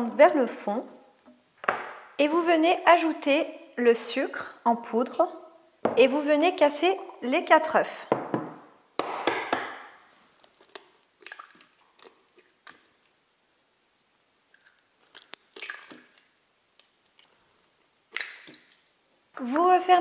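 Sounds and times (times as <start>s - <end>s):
eggs cracking on steel bowl: 9.0s - 13.2s, 14.5s - 18.9s.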